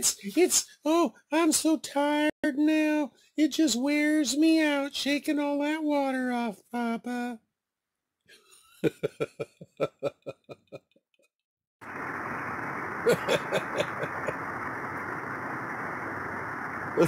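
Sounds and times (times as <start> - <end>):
man chuckling: 8.8 - 10.8, 13.1 - 14.4
steady rushing noise: 11.8 - 17.0.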